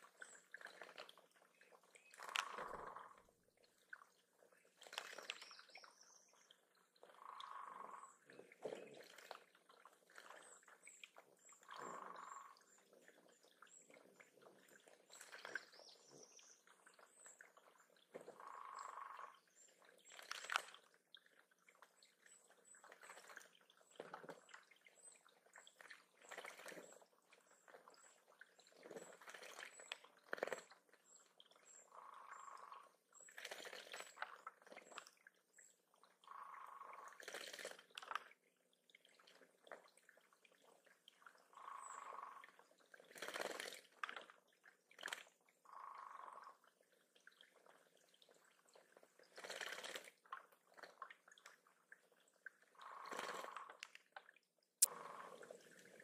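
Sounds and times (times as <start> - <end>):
bird splashing in water: 4.8 - 5.5, 25.8 - 26.8, 28.8 - 30.7, 33.3 - 35.0, 49.2 - 51.0, 52.8 - 53.8.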